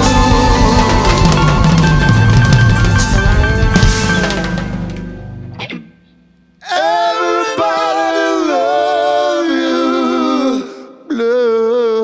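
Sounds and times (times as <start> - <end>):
a cappella singing in harmony: 6.6 - 12.0.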